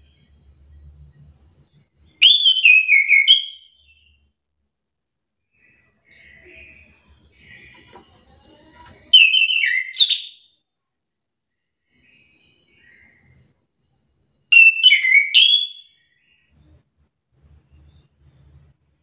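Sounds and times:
thrush singing whistled notes: 0.0s - 4.3s, 9.1s - 10.5s, 14.5s - 16.5s.

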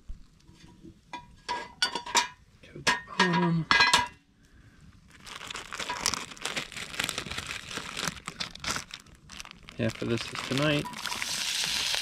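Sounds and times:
plastic bag crinkling: 5.1s - 12.0s.

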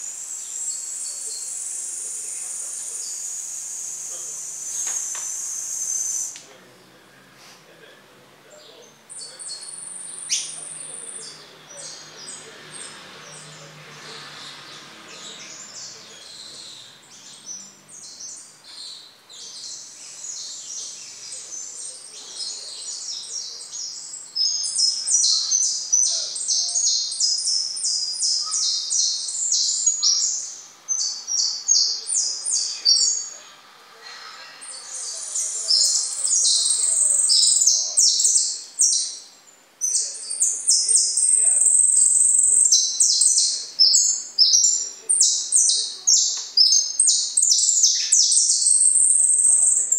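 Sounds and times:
finch chirping and trilling: 9.1s - 33.4s, 34.4s - 49.9s.

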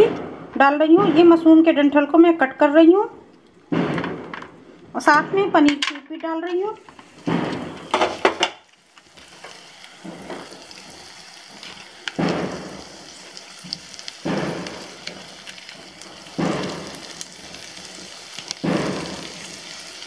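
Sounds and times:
mushrooms sizzling in a pan: 7.1s - 20.0s.

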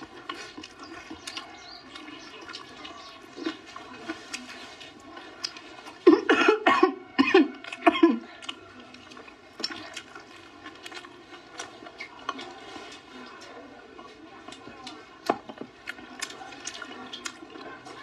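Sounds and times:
chewing clicks: 0.0s - 6.0s, 8.4s - 18.0s
person coughing: 6.0s - 8.3s.

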